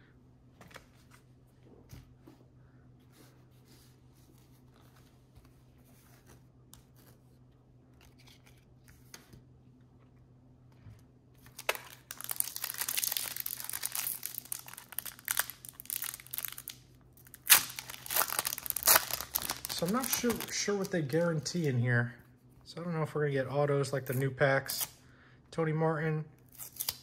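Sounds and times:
wrapper crinkling and tearing: 11.4 - 21.6.

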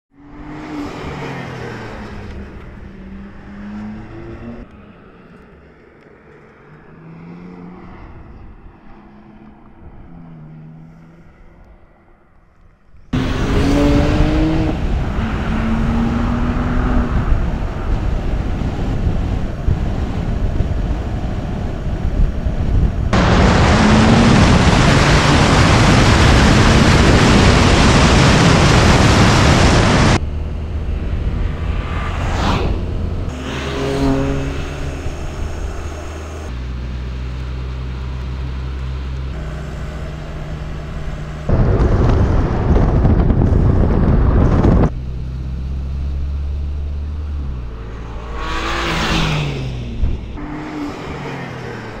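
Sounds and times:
car engine revving while driving: 0.2 - 4.7, 13.1 - 21.5, 22.5 - 43.6, 44.2 - 52.0
loud rushing noise: 23.0 - 30.2, 30.9 - 36.5.

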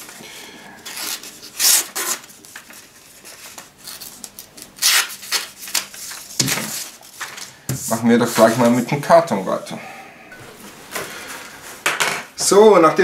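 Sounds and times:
knife tearing paper: 0.9 - 2.3, 3.4 - 7.1.

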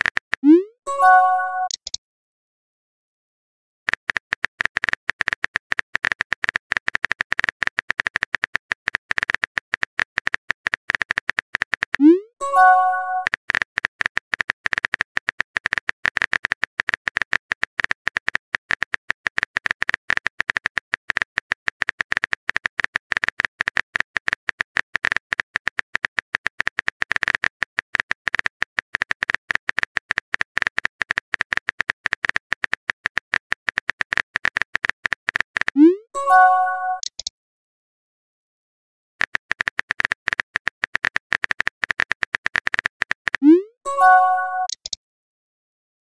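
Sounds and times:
keyboard typing clicks: 0.0 - 2.0, 3.9 - 37.3, 39.2 - 45.0.

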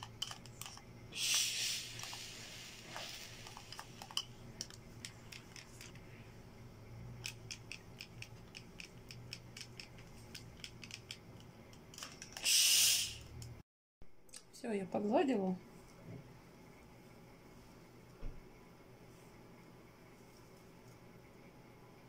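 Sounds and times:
steam iron hiss: 1.1 - 4.0, 12.4 - 13.3.

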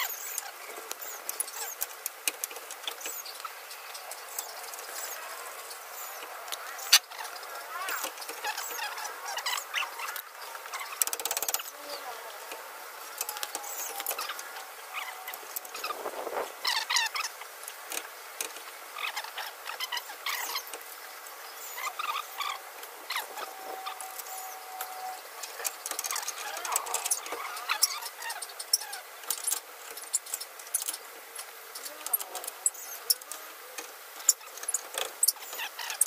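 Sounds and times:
short squeaks: 6.8 - 11.7, 13.1 - 16.0, 21.6 - 31.0, 34.2 - 36.0.

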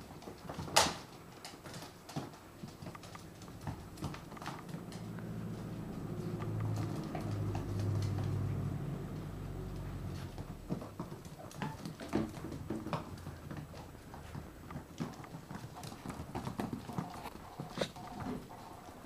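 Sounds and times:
puppy claws scrabbling on floor: 0.0 - 19.0.

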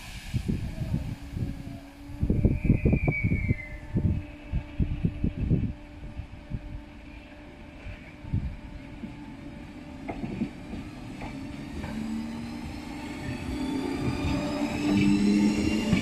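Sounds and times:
electric train motor whine: 0.3 - 16.0
wheels clicking over rail joints: 8.9 - 16.0.

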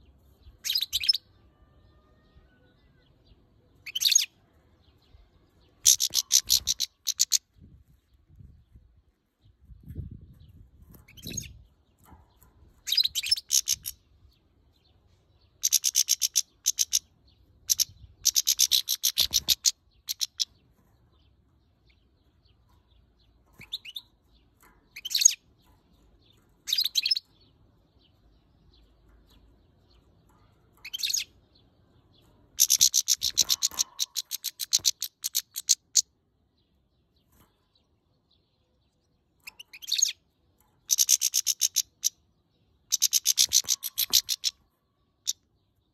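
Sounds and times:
goldfinch twittering calls: 5.8 - 7.4, 12.8 - 14.0, 15.6 - 20.6, 24.9 - 25.4, 26.7 - 27.2, 30.8 - 31.3, 32.6 - 36.1, 39.4 - 40.2, 40.8 - 42.2, 42.9 - 44.6.

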